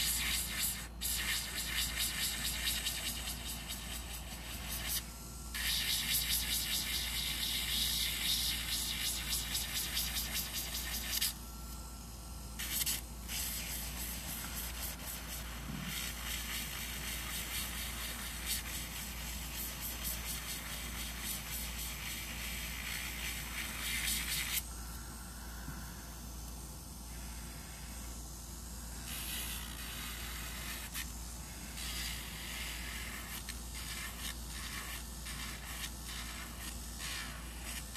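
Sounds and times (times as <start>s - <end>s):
nail drill grinding buzz: 0.0s - 11.7s.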